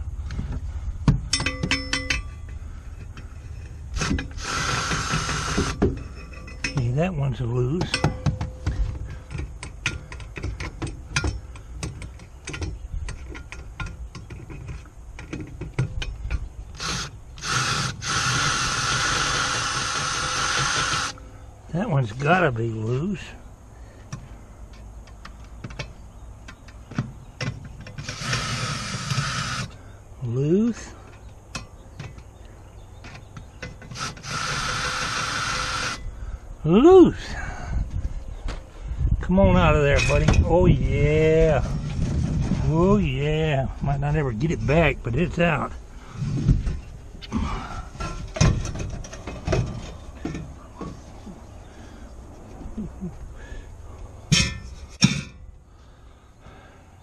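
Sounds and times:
metallic clinks: 1.3 - 2.6, 6.0 - 6.9
cordless drill running: 4.0 - 5.8, 16.8 - 21.2, 28.0 - 29.7, 34.0 - 36.0.

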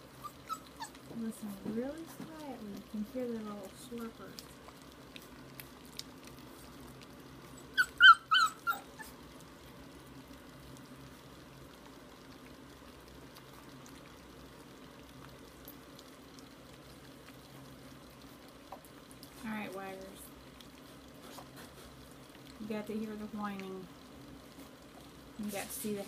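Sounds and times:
puppies slurping food: 0.0 - 26.0
puppy yipping: 0.2 - 1.1, 7.5 - 9.2.

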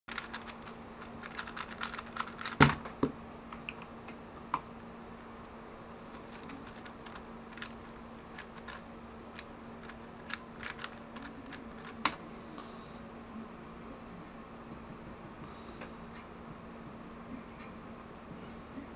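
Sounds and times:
plastic puzzle cube clicking: 0.1 - 2.7, 6.3 - 7.8, 8.4 - 8.8, 9.4 - 12.2.

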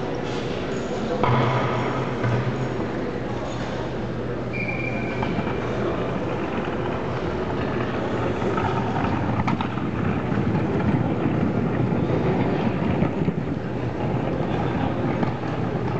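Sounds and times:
low rumbling noise: 5.4 - 15.9.

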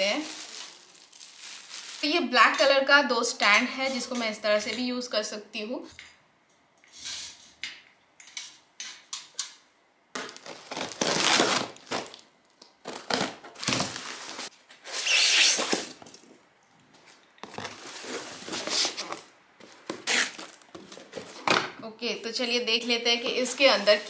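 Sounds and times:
packing tape ripped off: 10.3 - 12.2, 12.9 - 16.0, 19.9 - 20.7.

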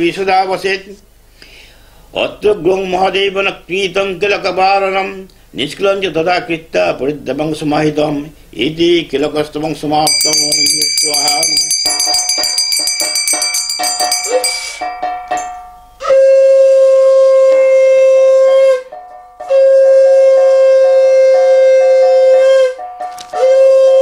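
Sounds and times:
small hand bell ringing: 10.1 - 16.0.

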